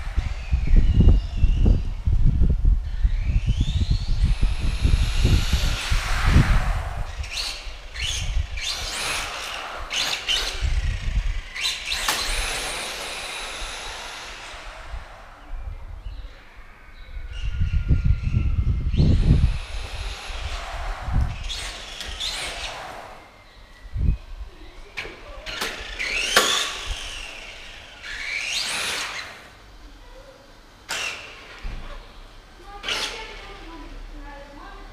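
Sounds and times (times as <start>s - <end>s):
low rumble: 0.0s - 8.6s, 13.8s - 24.6s
electric motor whining: 0.0s - 16.2s, 17.7s - 23.4s, 25.6s - 29.5s.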